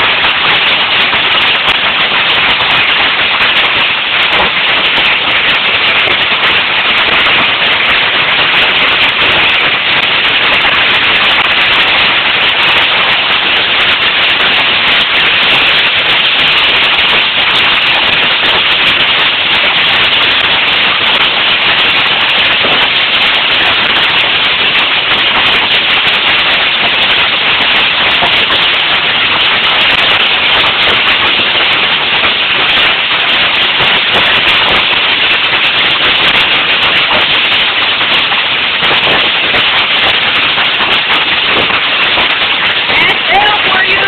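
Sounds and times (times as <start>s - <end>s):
hail clattering on surfaces: 0.0s - 44.0s.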